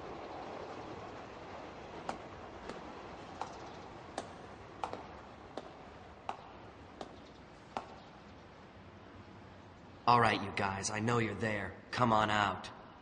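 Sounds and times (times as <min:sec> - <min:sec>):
sharp clicking footsteps: 0:02.1 - 0:08.2.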